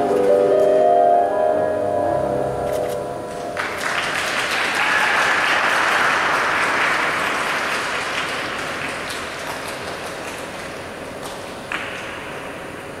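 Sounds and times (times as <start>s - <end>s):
music with held notes: 0.0s - 3.6s
audience applause: 3.6s - 12.0s.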